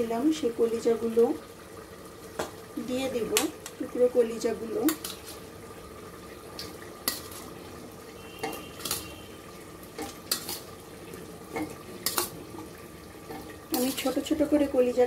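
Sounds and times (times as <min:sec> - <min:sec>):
masala frying in oil: 0:00.0 - 0:15.0
utensils clinking on metal pot: 0:07.0 - 0:07.5, 0:08.4 - 0:09.2, 0:10.0 - 0:10.7, 0:11.5 - 0:12.4, 0:13.3 - 0:14.4.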